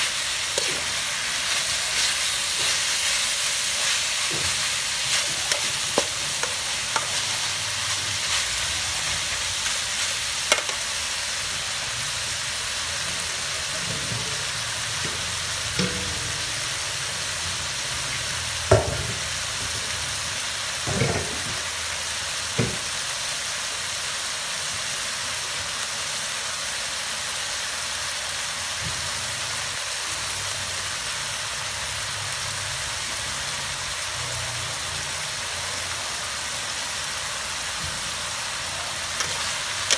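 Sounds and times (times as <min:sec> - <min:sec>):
chicken sizzling in a wok: 0:00.0 - 0:39.9
metal ladle knocking on pan: 0:10.5 - 0:10.8, 0:15.8 - 0:16.4, 0:18.7 - 0:19.4.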